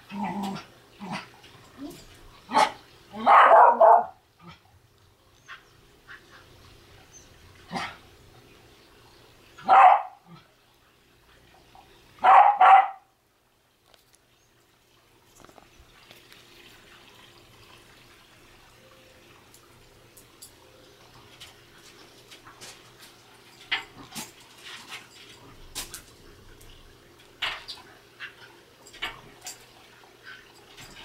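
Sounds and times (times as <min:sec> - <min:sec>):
dog barking: 0:02.5 - 0:04.2, 0:09.6 - 0:10.2, 0:12.2 - 0:13.1.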